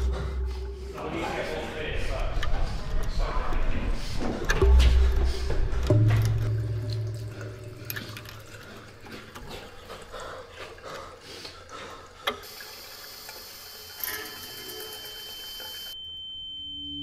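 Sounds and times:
low hum: 0.0 - 9.8
tap water running into sink: 5.8 - 16.0.

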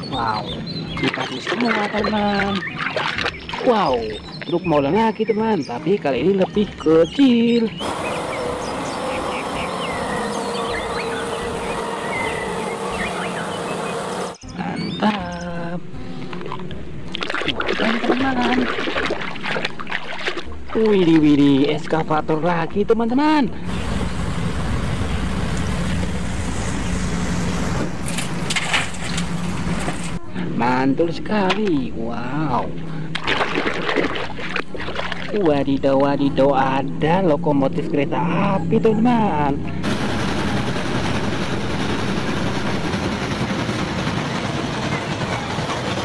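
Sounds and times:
diesel excavator engine running: 7.5 - 14.6, 23.6 - 30.5, 36.2 - 46.0
steam train rumbling past: 7.8 - 14.4, 23.7 - 30.2, 39.8 - 46.0.

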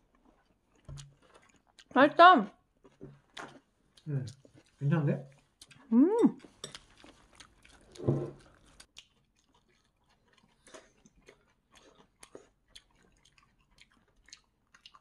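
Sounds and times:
wet chewing of noodles: 0.0 - 15.0
person humming: 5.9 - 6.4.

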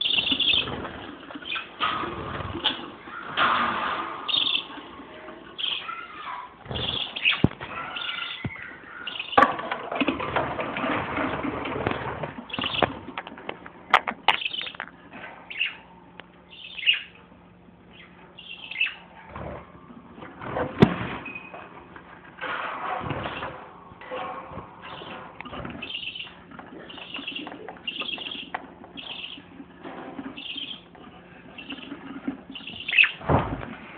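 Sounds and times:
parakeets chirping and chattering: 0.0 - 4.9, 5.5 - 9.5, 10.3 - 13.1, 14.1 - 14.9, 15.5 - 15.8, 16.5 - 17.2, 17.9 - 19.6, 22.6 - 33.2.

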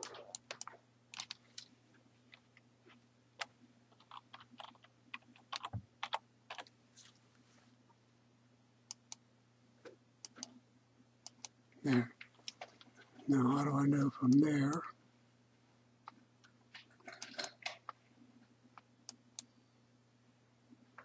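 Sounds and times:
computer keyboard typing: 0.0 - 1.4, 3.4 - 6.7
faint steady hum: 0.0 - 21.0.

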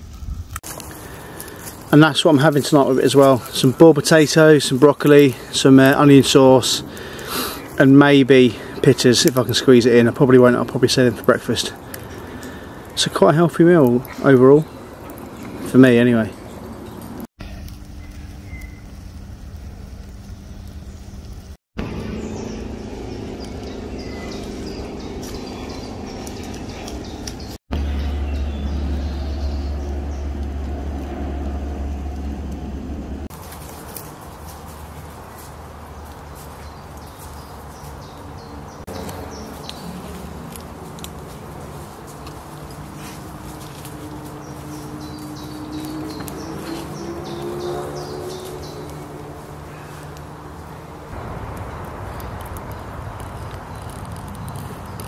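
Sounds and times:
small crackles: 0.0 - 21.6, 33.3 - 55.0
birds chirping: 0.0 - 55.0
low rumble: 17.4 - 33.3, 51.0 - 54.4
steady low hum: 17.4 - 33.8.

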